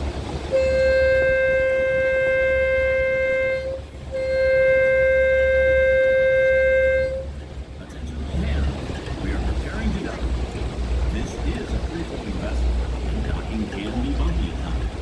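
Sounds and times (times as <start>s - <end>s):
boat engine droning: 0.0s - 15.0s
boat horn blasts: 0.1s - 7.6s.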